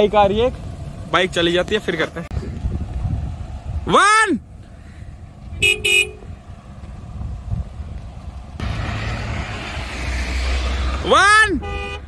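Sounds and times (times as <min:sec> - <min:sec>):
car engines idling: 0:00.0 - 0:12.0
vehicle approaching: 0:00.0 - 0:12.0.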